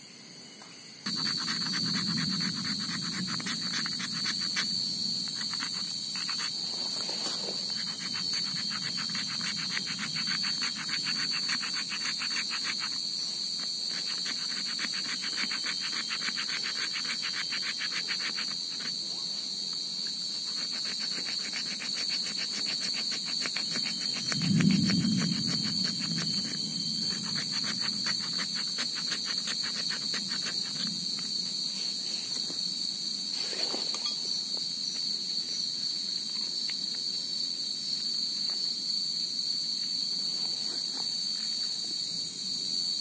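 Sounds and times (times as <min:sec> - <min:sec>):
crickets trilling: 0:00.0 - 0:43.0.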